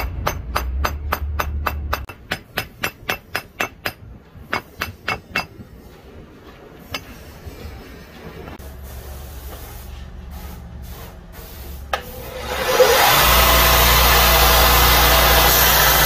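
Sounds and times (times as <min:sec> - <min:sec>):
hammer tapping on metal: 0:00.0 - 0:05.6.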